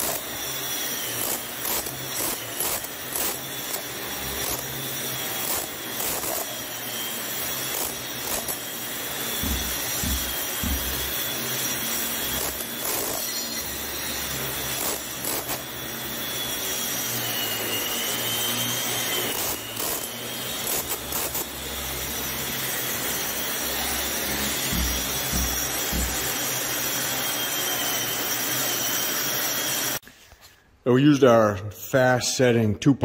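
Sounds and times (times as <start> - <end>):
angle grinder grinding concrete: 0.0 - 30.0
grinder knocking on surface: 9.2 - 11.5, 24.3 - 26.6.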